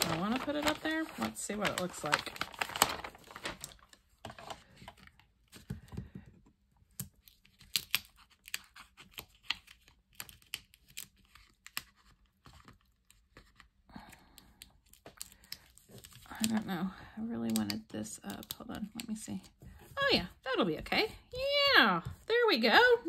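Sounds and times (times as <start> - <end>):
paper rustling: 0.0 - 5.9.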